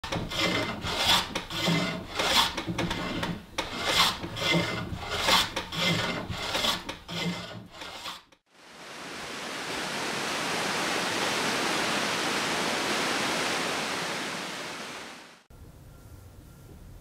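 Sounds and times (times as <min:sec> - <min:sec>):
hand tool rasping wood: 0:00.0 - 0:08.4.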